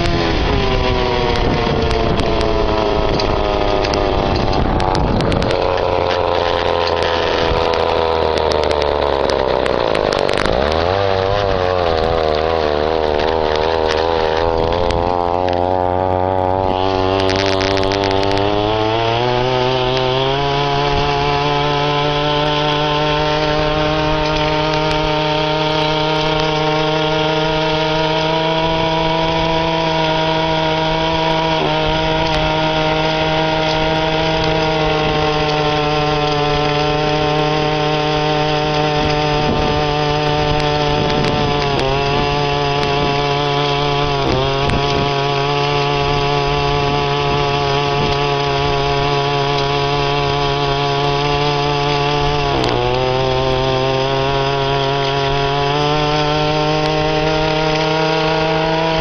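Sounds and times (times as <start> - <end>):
two-stroke engine at high revs: 0.0 - 59.0.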